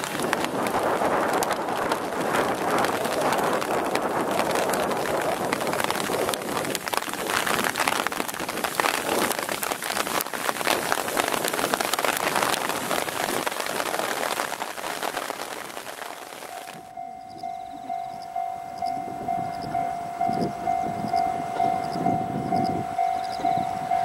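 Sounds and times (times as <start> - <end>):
heavy rain downpour: 0.0 - 24.0
pulsing steady tone: 16.9 - 24.0.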